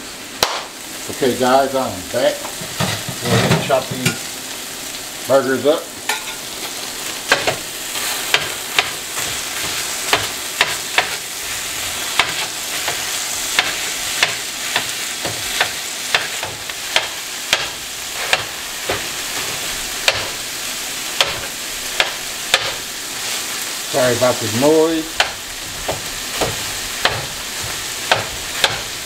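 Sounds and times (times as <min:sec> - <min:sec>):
meat sizzling on a griddle: 0:00.0 - 0:29.0
metal scrapers clacking on griddle: 0:02.2 - 0:04.3.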